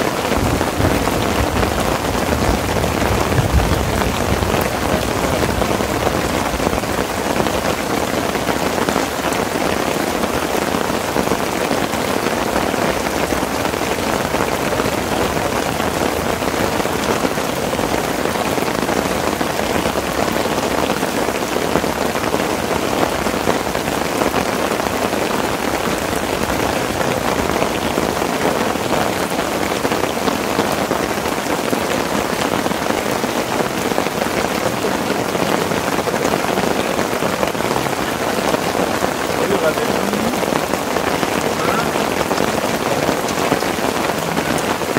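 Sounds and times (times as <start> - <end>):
heavy rain on tent: 0.0 - 44.9.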